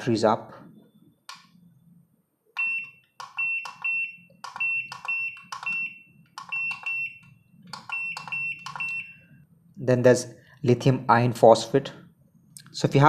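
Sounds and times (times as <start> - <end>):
short high beeps: 2.6 - 7.3, 7.9 - 9.3.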